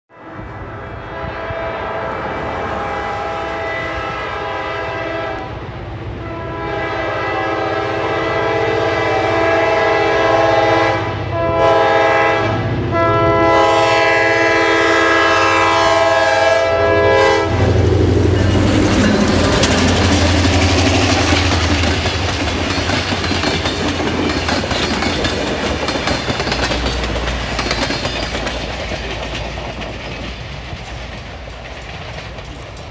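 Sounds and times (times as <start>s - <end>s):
train engine rumble: 0.2s - 32.9s
locomotive air horn blasts: 0.9s - 5.5s, 6.2s - 21.7s
train wheels clattering over rail joints: 18.2s - 32.9s.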